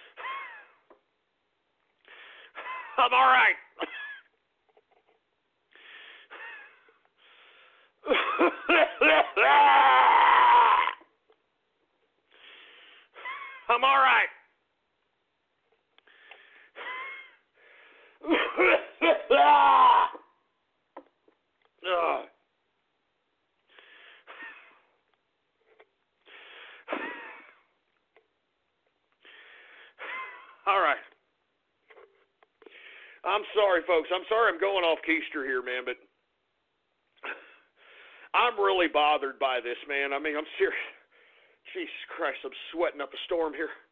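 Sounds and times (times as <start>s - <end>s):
man coughing: 0.1s - 0.8s, 2.6s - 3.0s, 3.8s - 4.3s, 8.0s - 9.4s, 18.2s - 19.3s, 26.9s - 27.7s
heavy breaths: 5.7s - 6.4s, 16.0s - 16.8s, 17.5s - 18.2s, 29.2s - 30.0s, 32.6s - 33.2s, 37.2s - 38.3s, 40.8s - 41.7s.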